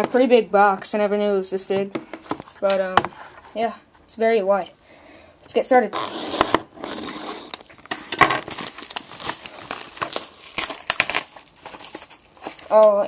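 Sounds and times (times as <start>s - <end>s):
plastic wrapping crinkling and tearing: 6.8s - 13.0s.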